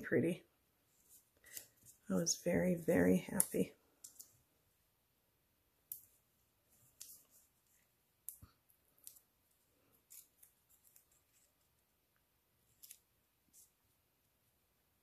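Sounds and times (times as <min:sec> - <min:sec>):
paper ticks and crackles: 0:06.8 - 0:11.6.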